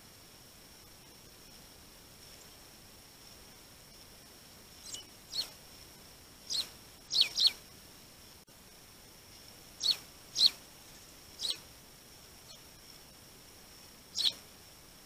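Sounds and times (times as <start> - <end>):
sparrows chirping: 4.7 - 5.6, 6.4 - 7.6, 9.8 - 11.7, 12.4 - 12.7, 14.1 - 14.4.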